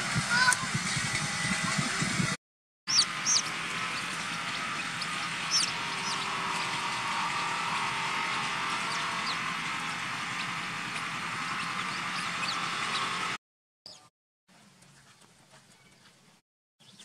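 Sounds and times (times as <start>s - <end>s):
baby chicks peeping: 2.9s - 7.8s, 8.4s - 9.5s, 10.3s - 13.3s.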